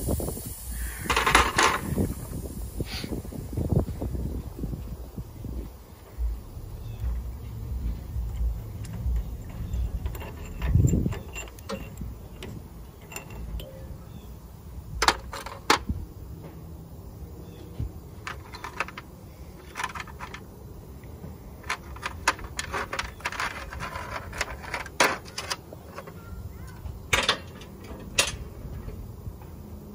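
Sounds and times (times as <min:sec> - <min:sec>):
metallic clicks and clinks: 0:08.1 - 0:14.0, 0:21.6 - 0:28.5.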